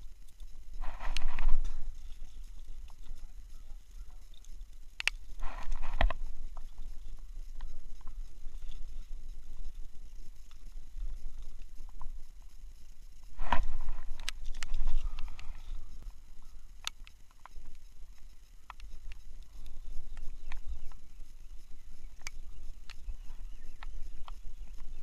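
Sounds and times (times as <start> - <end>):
steady low rumble: 0.0 - 25.0.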